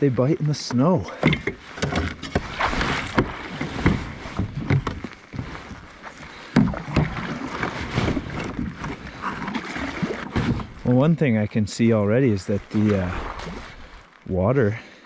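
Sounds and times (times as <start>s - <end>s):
paddle knocking plastic hull: 0.7s - 11.0s
paddle splashing in water: 0.7s - 11.4s, 12.5s - 14.3s.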